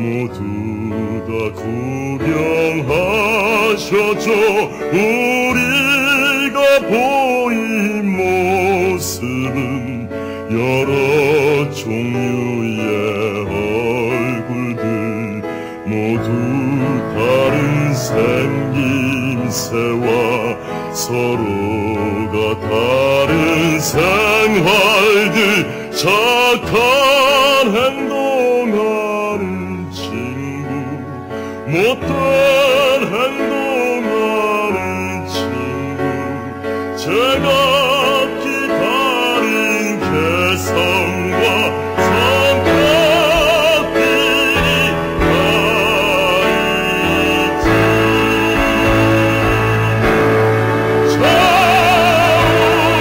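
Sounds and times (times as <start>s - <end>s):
man singing with vibrato: 0.0s - 53.0s
orchestral accompaniment: 16.2s - 28.5s, 33.7s - 53.0s.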